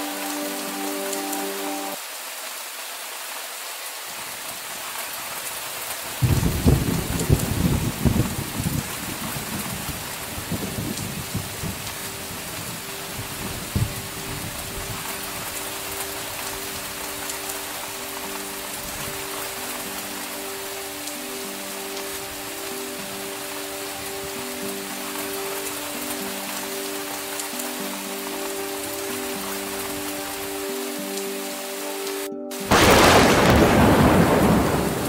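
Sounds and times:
steady rain: 0:00.0 - 0:35.0
thunderclap with crackling rumble: 0:06.2 - 0:14.9, 0:32.7 - 0:35.0.

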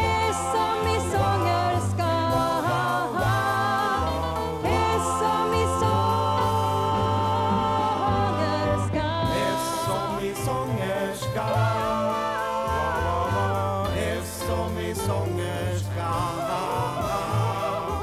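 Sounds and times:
woman singing: 0:00.0 - 0:14.1
instrumental backing with bass: 0:00.0 - 0:18.0.

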